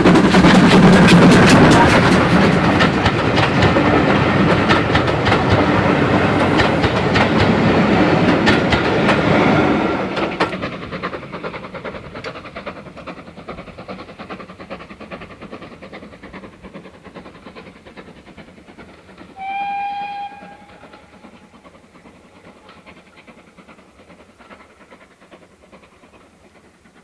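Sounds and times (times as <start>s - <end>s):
steam train chuffing: 0.0s - 27.0s
steam whistle blast: 19.4s - 21.3s.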